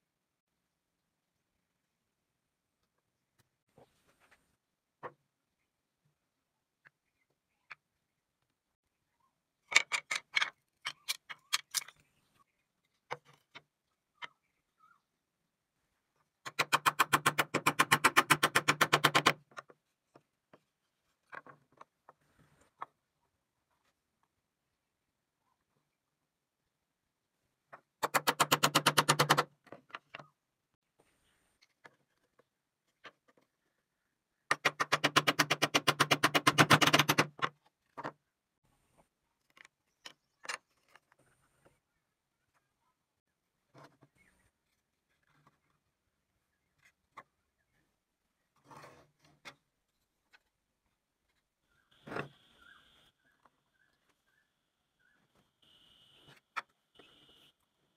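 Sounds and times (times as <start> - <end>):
wooden pieces knocking: 9.6 - 12.1.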